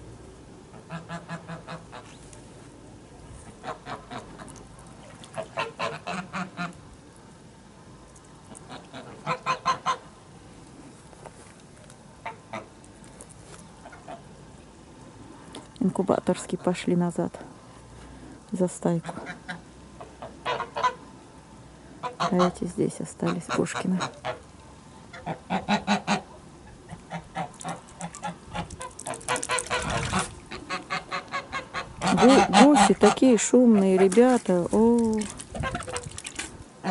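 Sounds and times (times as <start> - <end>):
geese calling softly: 0.7 - 2.4, 3.4 - 4.6, 5.2 - 6.8, 8.5 - 10.1, 12.2 - 13.0, 13.6 - 14.4, 19.0 - 21.2, 21.9 - 34.4
geese honking: 5.4 - 6.8, 8.7 - 10.0, 20.2 - 21.0, 27.1 - 34.2.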